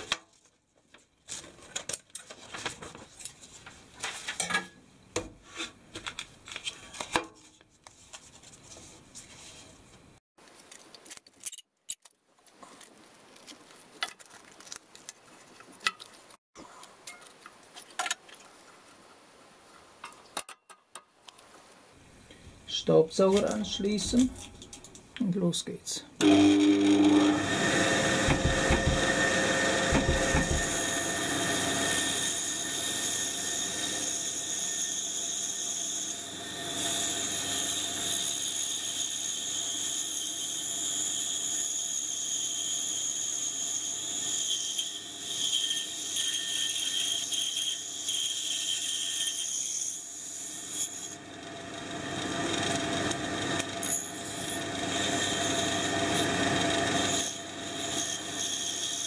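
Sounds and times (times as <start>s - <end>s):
vacuum whine: 26.2s - 31.9s
band saw cutting wood: 26.2s - 59.0s.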